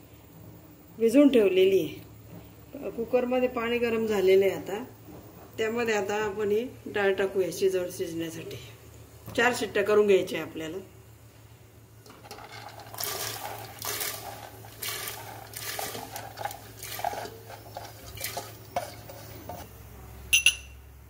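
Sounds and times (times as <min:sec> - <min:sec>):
lentils poured into water: 0:12.1 - 0:19.6
spoon scraping a steel bowl: 0:12.2 - 0:19.7
sharp metallic clinks: 0:20.3 - 0:20.8.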